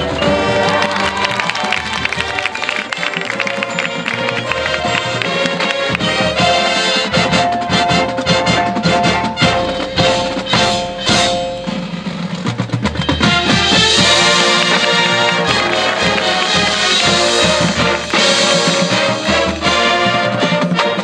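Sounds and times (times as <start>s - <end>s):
brass chords: 0.0s - 12.2s, 13.1s - 21.0s
drums and percussion: 0.0s - 21.0s
sharp percussion hits: 8.8s - 20.4s.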